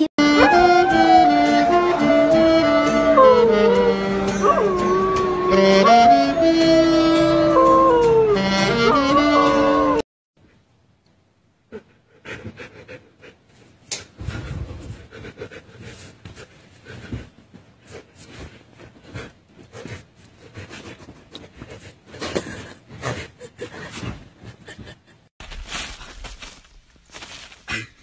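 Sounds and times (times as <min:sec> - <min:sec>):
dog panting: 0:11.8 - 0:25.0.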